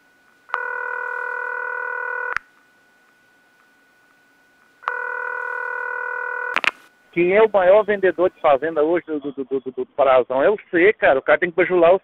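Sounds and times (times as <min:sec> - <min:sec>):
faint line hum: 0:00.0 - 0:12.0
telephone ringback tone: 0:00.5 - 0:02.4, 0:04.8 - 0:06.6.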